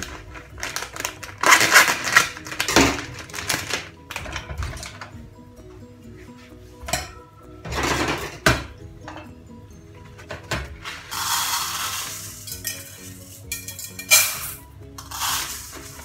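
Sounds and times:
soft background music: 0:00.0 - 0:16.0
rice pouring into metal pot: 0:11.1 - 0:13.0, 0:14.3 - 0:16.0.

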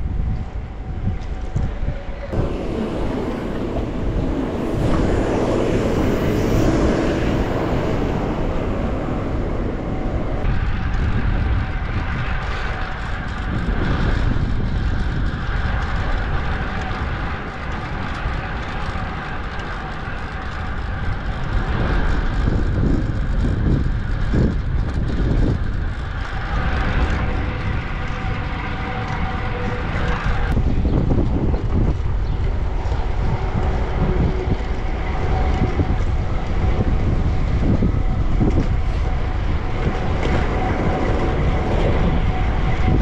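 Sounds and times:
wind on microphone: 0:00.0 - 0:43.0
cars passing: 0:02.3 - 0:10.7.

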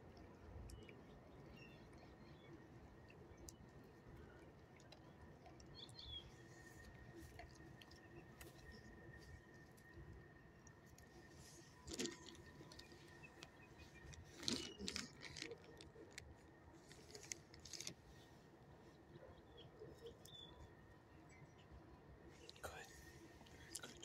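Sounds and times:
faint rustles and clicks: 0:06.3 - 0:19.2.

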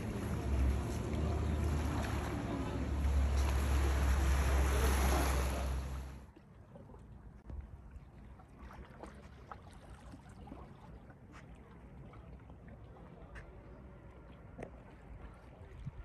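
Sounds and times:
waves on pebble beach: 0:00.0 - 0:06.2
water lapping against rocks: 0:00.0 - 0:13.5
wind on microphone: 0:15.3 - 0:16.0.

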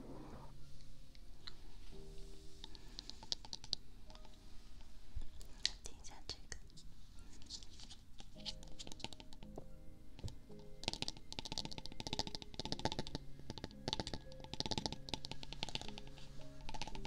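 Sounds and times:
soft background music: 0:00.0 - 0:17.0
crisp clicking and tapping: 0:01.2 - 0:04.4, 0:05.2 - 0:17.0.

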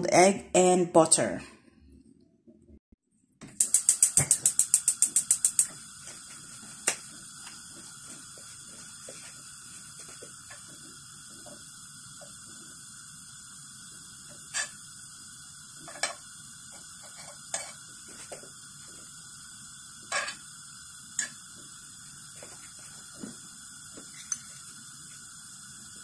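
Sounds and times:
gas flame hissing: 0:03.4 - 0:26.0
gas igniter clicking: 0:03.5 - 0:05.9, 0:21.2 - 0:21.5.

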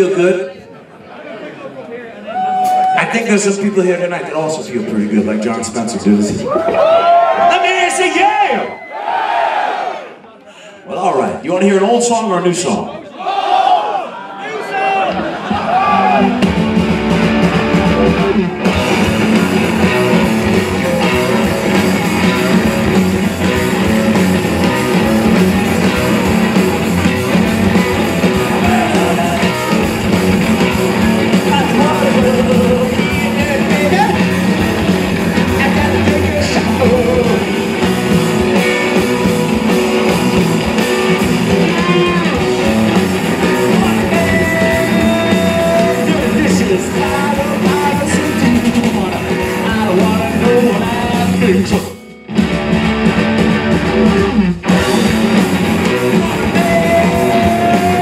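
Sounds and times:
rock band playing loudly: 0:14.9 - 0:58.0
person singing: 0:28.3 - 0:29.8, 0:31.3 - 0:34.3, 0:35.5 - 0:37.9, 0:43.5 - 0:52.0, 0:55.8 - 0:58.0.

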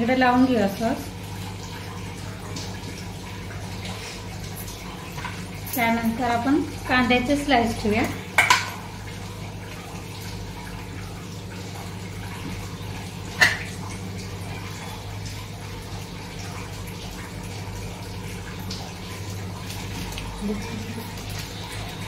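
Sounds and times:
rain falling: 0:12.2 - 0:22.0.

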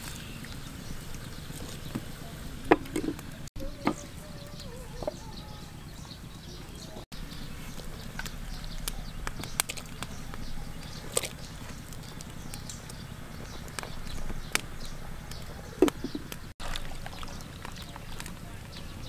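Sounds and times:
wood fire crackling and popping: 0:07.1 - 0:19.0.

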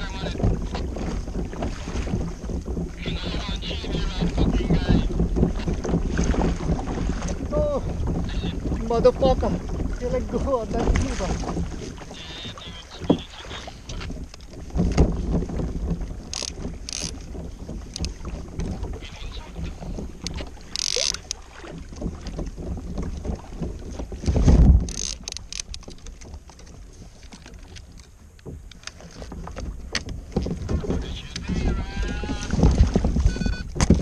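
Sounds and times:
water slapping against kayak: 0:00.0 - 0:34.0
wind buffeting microphone: 0:00.0 - 0:34.0
sharp clicks and knocks: 0:13.9 - 0:19.0, 0:19.9 - 0:31.5, 0:32.5 - 0:34.0.

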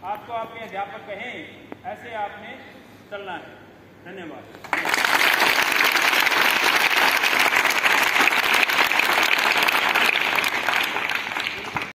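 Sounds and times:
crowd of children applauding: 0:04.7 - 0:11.9.

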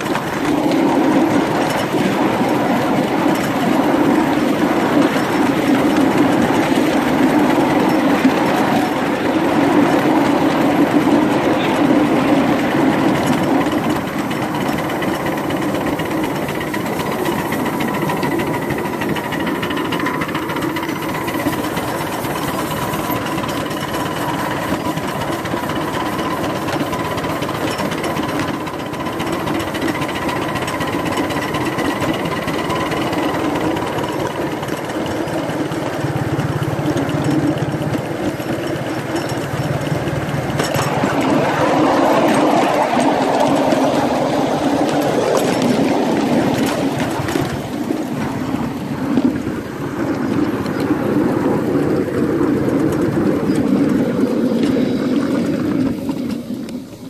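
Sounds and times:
miniature locomotive chugging: 0:00.0 - 0:57.0.

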